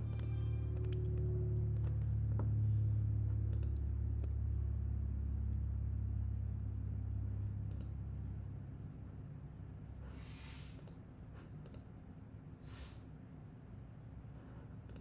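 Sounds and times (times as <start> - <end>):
low hum: 0.0 - 15.0
computer mouse clicks: 3.5 - 3.8, 7.7 - 8.0, 10.7 - 11.0, 11.6 - 11.9.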